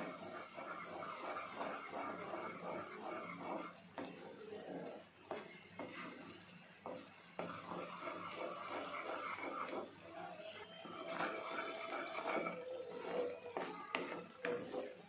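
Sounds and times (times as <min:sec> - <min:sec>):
liquid boiling: 0:00.0 - 0:15.0
spatula scraping a pan: 0:00.0 - 0:15.0
spatula knocking against pan: 0:13.6 - 0:14.9.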